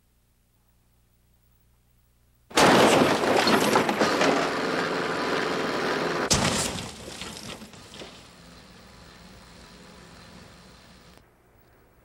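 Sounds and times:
crunching and tumbling: 2.5s - 8.4s
van crashing: 2.5s - 9.2s
sharp impact: 6.3s - 7.3s.

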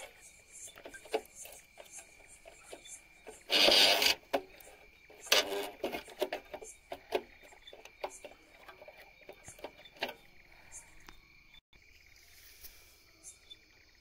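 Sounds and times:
plastic rasping: 0.0s - 11.1s.

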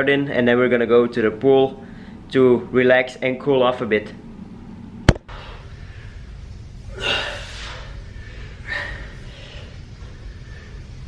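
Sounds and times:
steady low hum: 0.0s - 11.0s
man breathing forcefully: 5.2s - 11.0s.

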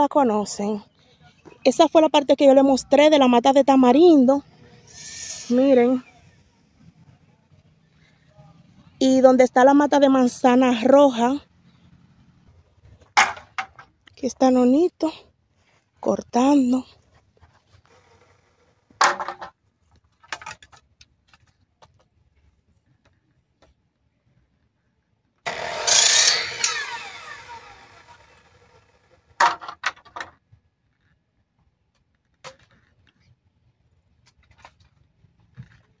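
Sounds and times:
electric miter saw cutting: 4.6s - 5.7s, 25.4s - 29.2s
bamboo clattering: 12.9s - 14.0s, 18.9s - 22.2s.

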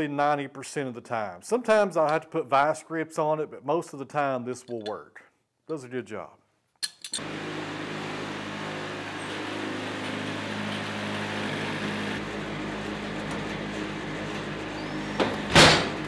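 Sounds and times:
sawmill engine running: 7.2s - 16.0s
loud clunk: 15.2s - 16.0s.

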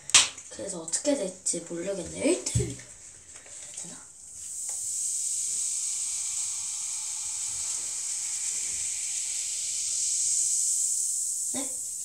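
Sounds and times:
cola fizzing: 2.5s - 12.0s.

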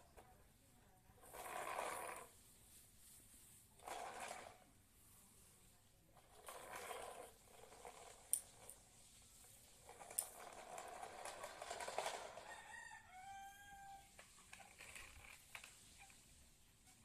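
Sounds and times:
rooster crowing: 12.3s - 14.2s
rustling with sharp clicks: 14.1s - 17.0s.

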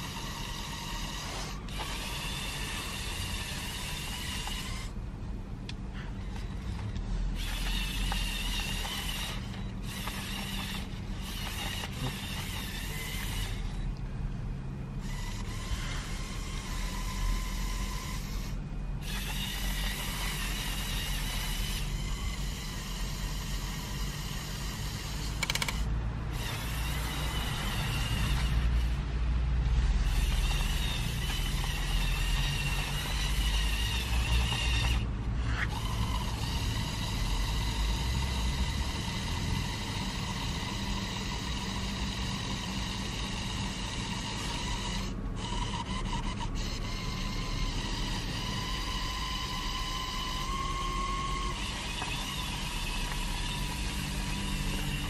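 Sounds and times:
toy electric motors whining: 0.0s - 55.0s.

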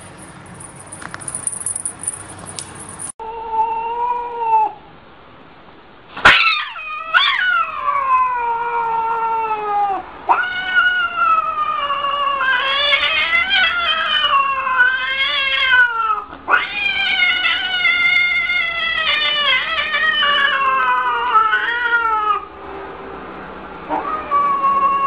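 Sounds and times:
cat yowling: 3.2s - 4.8s, 6.2s - 22.5s, 23.9s - 25.0s.

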